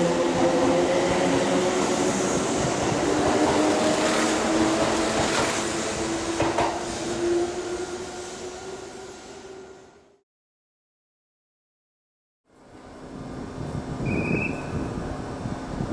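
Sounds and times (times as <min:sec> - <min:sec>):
train running noise: 0:00.0 - 0:08.8.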